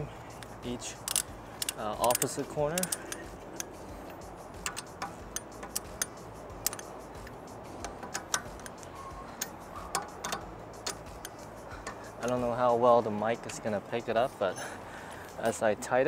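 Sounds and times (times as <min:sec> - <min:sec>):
low steady hum: 0:00.0 - 0:15.7
ratchet wrench clicking: 0:00.3 - 0:12.7.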